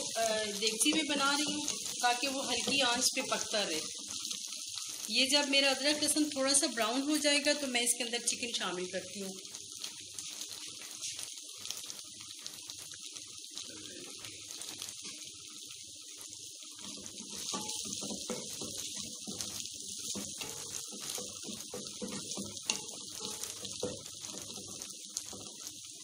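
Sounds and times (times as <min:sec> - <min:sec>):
onions sizzling in hot oil: 0:00.0 - 0:26.0
spatula scraping pot: 0:16.8 - 0:25.5.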